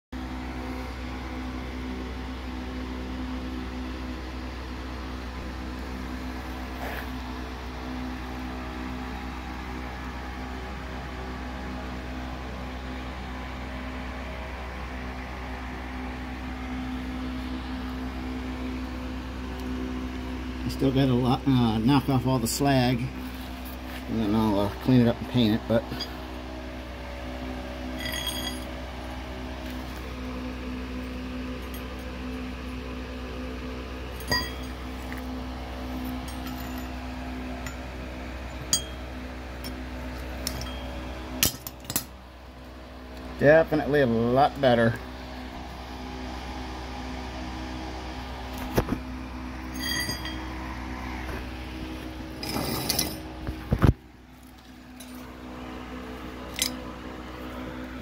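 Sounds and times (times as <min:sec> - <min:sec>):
steady background hum: 0:00.2 - 0:58.0
metal tubes clinking: 0:28.0 - 0:28.8, 0:34.1 - 0:35.2, 0:35.9 - 0:37.0, 0:38.6 - 0:42.1, 0:49.7 - 0:50.6, 0:52.4 - 0:53.2, 0:54.6 - 0:55.3, 0:56.5 - 0:56.9.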